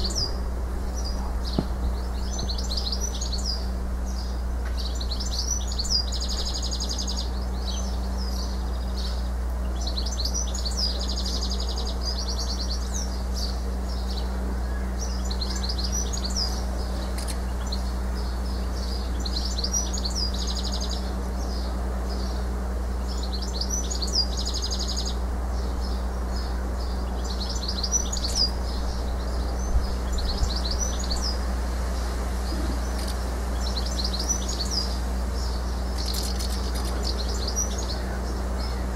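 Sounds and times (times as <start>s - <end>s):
house martins twittering: 0.0s - 22.4s, 23.0s - 38.9s
steady low hum: 0.0s - 38.9s.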